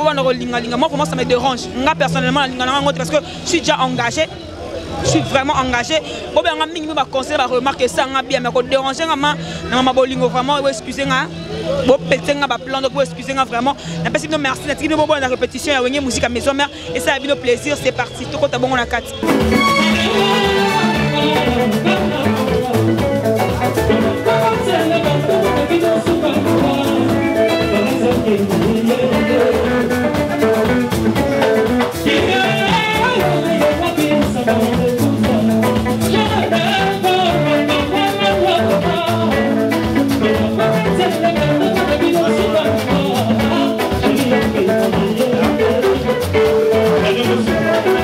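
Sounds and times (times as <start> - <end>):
man singing into a microphone: 0.0 - 4.2, 19.8 - 48.0
drum kit and conga beat: 0.0 - 18.1, 19.2 - 48.0
electric guitar lines: 19.2 - 48.0.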